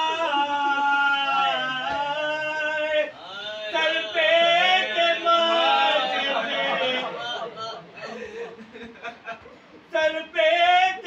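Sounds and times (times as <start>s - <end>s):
man chanting a lament: 0.0s - 7.5s, 9.9s - 11.0s.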